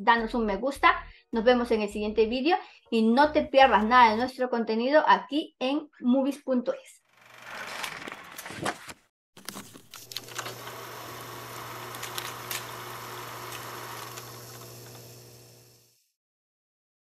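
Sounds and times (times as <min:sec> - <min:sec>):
old film crackles and pops: 0:09.4 - 0:15.2.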